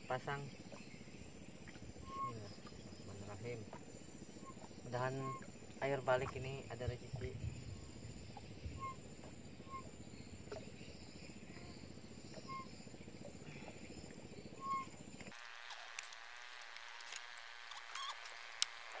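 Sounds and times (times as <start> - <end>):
bird chirping: 0.0 - 5.6, 7.2 - 13.2, 14.4 - 15.0
low outdoor rumble: 0.0 - 15.4
sharp clicks: 15.2 - 19.0.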